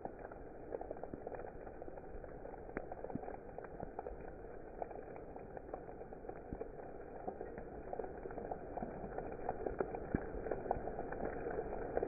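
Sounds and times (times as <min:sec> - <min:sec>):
hailstones ticking: 0:00.0 - 0:12.0
heavy rain on wet ground: 0:00.0 - 0:12.0.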